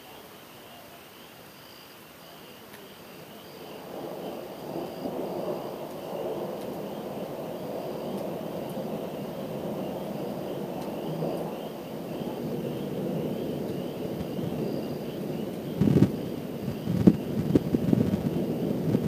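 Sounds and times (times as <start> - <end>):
faint high pulsing chirp: 0.0 - 18.6
distant thunder rumbling: 2.7 - 19.0.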